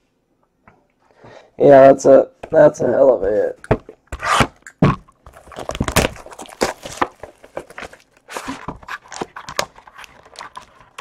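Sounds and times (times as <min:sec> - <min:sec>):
cardboard and wrapper handling: 0:04.2 - 0:11.0.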